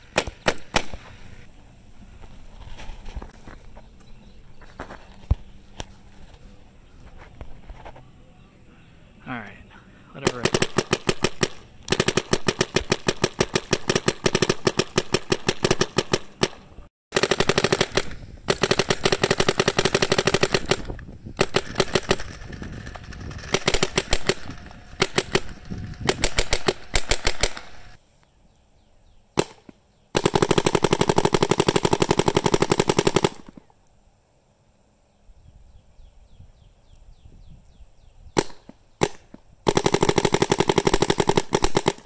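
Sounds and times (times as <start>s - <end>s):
paintball marker firing: 0.0s - 1.1s, 10.2s - 16.6s, 17.2s - 28.0s, 29.4s - 33.7s, 38.4s - 42.0s.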